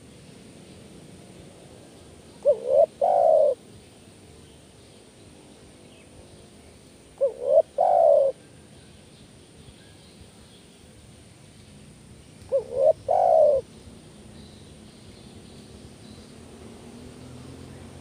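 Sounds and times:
dove cooing: 2.4s - 3.6s, 7.2s - 8.5s, 12.4s - 13.7s.

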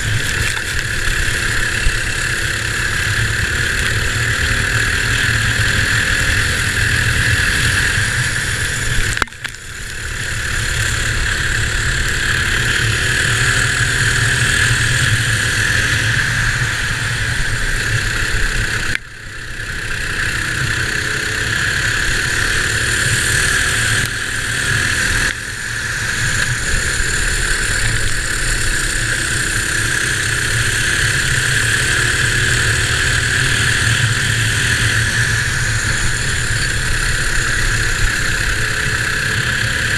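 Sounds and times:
kart engine running hard: 0.0s - 39.9s.

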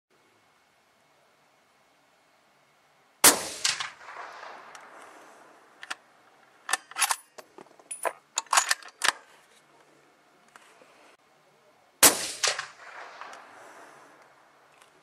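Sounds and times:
suppressed rifle shot: 3.2s - 5.1s, 12.0s - 13.6s.

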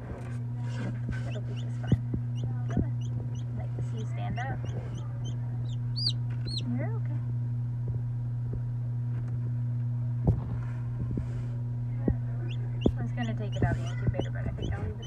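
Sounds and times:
incubator humming: 0.0s - 15.0s
chick peeping: 1.2s - 6.7s, 12.4s - 15.0s.

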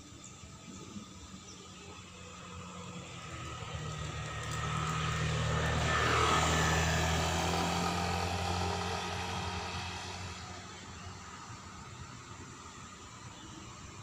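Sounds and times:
motorcycle passing by: 2.0s - 12.4s.

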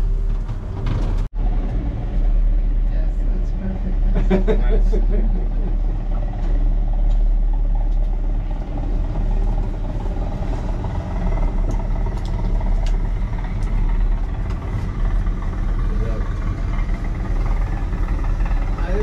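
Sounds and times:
vehicle running rumble: 0.0s - 19.0s.

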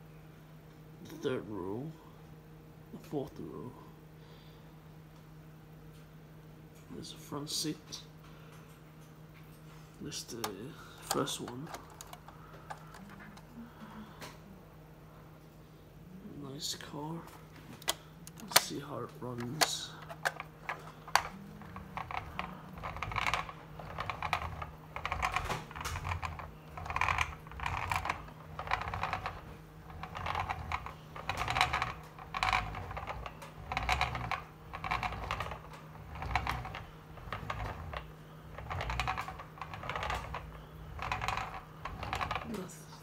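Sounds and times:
toy car wheels rasping and clicking: 20.1s - 42.7s.

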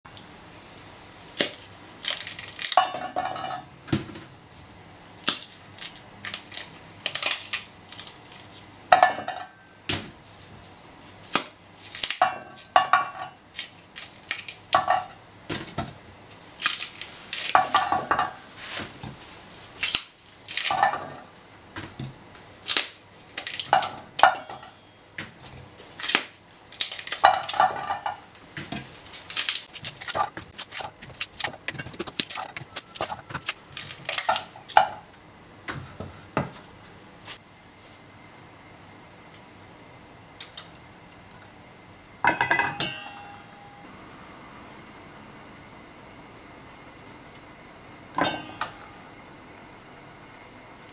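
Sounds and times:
bean pods snapping open: 1.4s - 2.8s, 5.2s - 8.5s, 13.6s - 14.6s, 16.6s - 17.6s, 19.8s - 20.8s, 22.6s - 23.8s, 26.0s - 27.6s.

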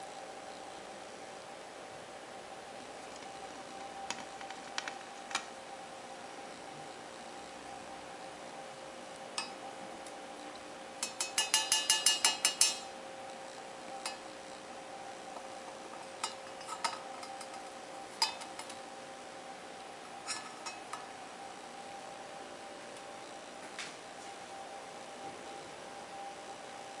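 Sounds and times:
beak clinking on metal jug: 11.0s - 12.9s.

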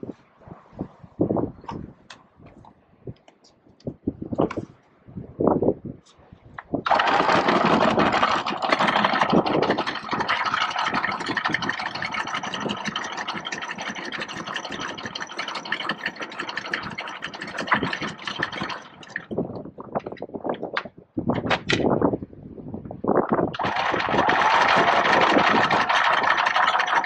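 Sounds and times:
anchor chain rattling: 6.8s - 20.7s, 23.6s - 27.0s
chain clunks: 6.9s - 20.9s.

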